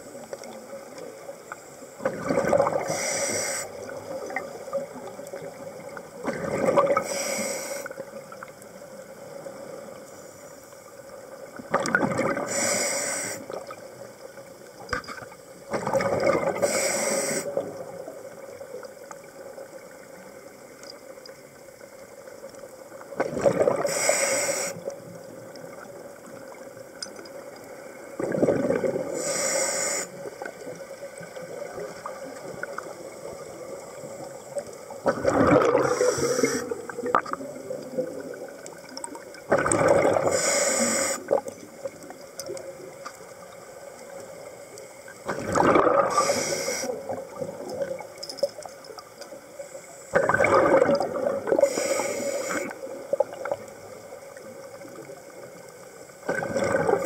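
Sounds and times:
underwater exhaled bubble bursts: 0:02.0 - 0:05.6, 0:06.2 - 0:07.2, 0:11.6 - 0:13.8, 0:15.7 - 0:18.4, 0:23.1 - 0:24.2, 0:28.2 - 0:29.4, 0:34.9 - 0:42.6, 0:45.2 - 0:48.1, 0:50.1 - 0:53.9, 0:56.2 - 0:57.0
regulator hiss: 0:02.8 - 0:04.0, 0:07.0 - 0:08.0, 0:12.5 - 0:13.6, 0:16.6 - 0:17.6, 0:23.8 - 0:24.9, 0:29.1 - 0:30.5, 0:35.8 - 0:37.1, 0:40.2 - 0:41.4, 0:46.1 - 0:47.2, 0:51.6 - 0:52.9.

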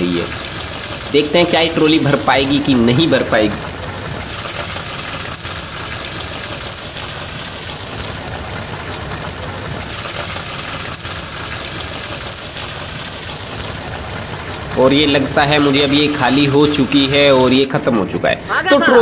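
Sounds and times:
hiss of falling grain: 0:09.9 - 0:13.8, 0:15.5 - 0:17.8.

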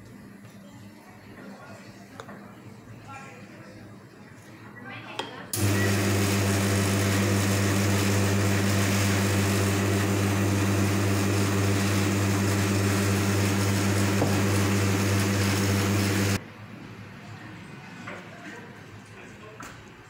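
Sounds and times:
espresso machine pump hum: 0:05.6 - 0:16.4.

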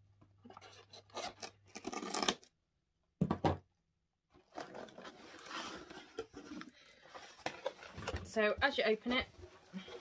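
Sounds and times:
cardboard rustling: 0:04.4 - 0:10.0.

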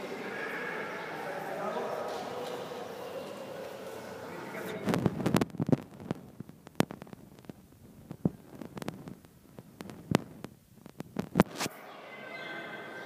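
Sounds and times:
sharp clicks and knocks: 0:04.9 - 0:11.5.

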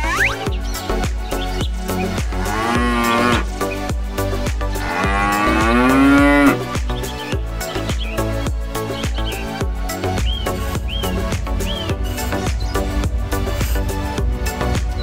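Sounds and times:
electronic music with beat: 0:00.0 - 0:15.0
cow mooing: 0:02.4 - 0:03.5, 0:04.8 - 0:06.6.

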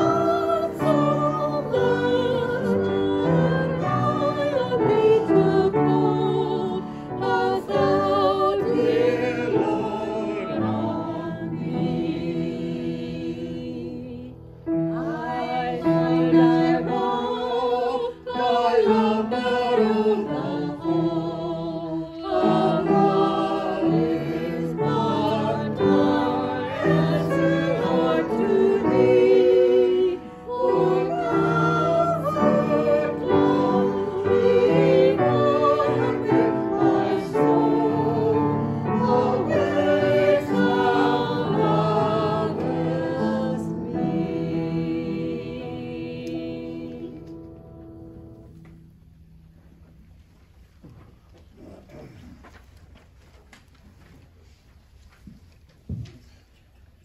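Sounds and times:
piano accompaniment: 0:00.0 - 0:13.2, 0:18.3 - 0:49.4
women singing a hymn: 0:00.0 - 0:48.6.

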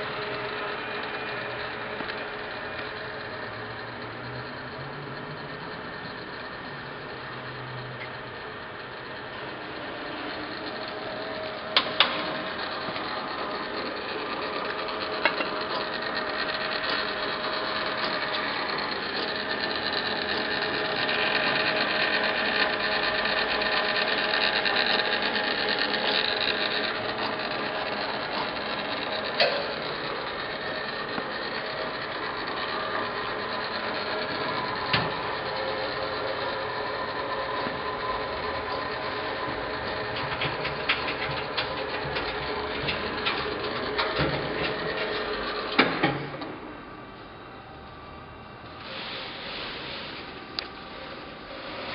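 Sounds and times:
lathe motor humming: 0:00.0 - 0:51.9.

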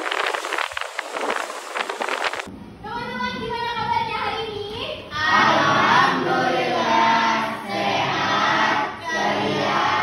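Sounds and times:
students singing in chorus: 0:05.2 - 0:10.0.

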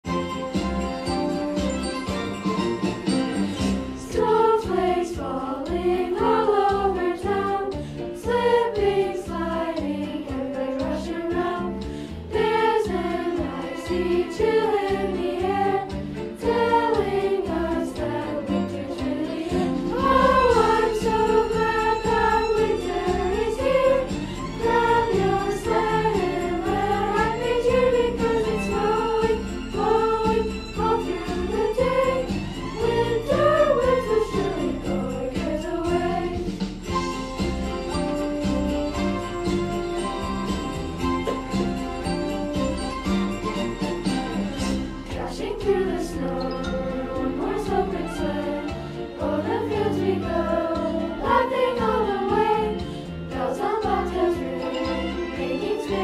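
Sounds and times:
instrumental accompaniment: 0:00.0 - 0:56.0
sleigh bells jingling: 0:00.1 - 0:07.7, 0:12.6 - 0:48.6, 0:49.5 - 0:56.0
children's chorus singing: 0:04.0 - 0:36.7, 0:45.1 - 0:56.0.

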